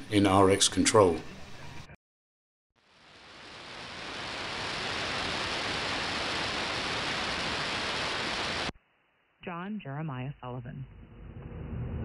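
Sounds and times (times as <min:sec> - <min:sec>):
radio static hiss: 0:02.8 - 0:08.7.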